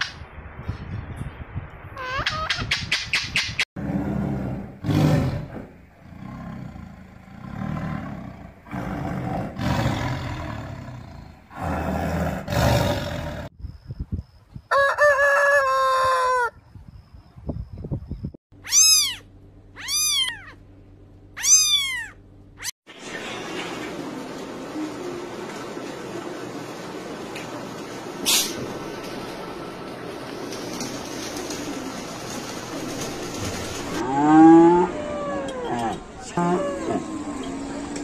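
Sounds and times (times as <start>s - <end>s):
rooster crowing: 14.7s - 16.6s.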